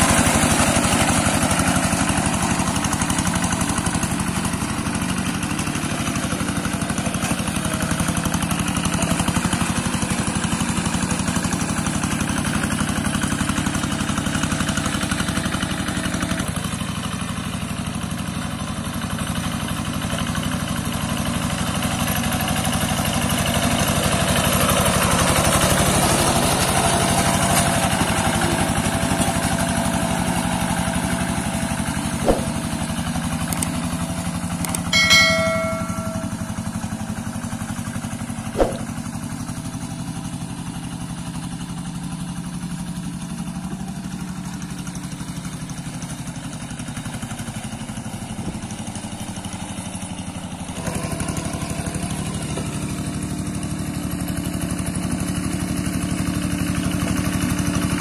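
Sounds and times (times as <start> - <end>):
hand tractor diesel engine running: 0.0 - 58.0
bell-like chime: 34.9 - 36.9
click sound effect: 38.6 - 38.9.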